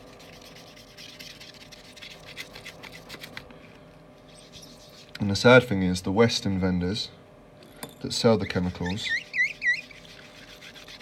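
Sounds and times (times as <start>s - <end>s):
sponge scrubbing glass: 0.0s - 3.4s, 4.3s - 5.1s, 8.4s - 11.0s.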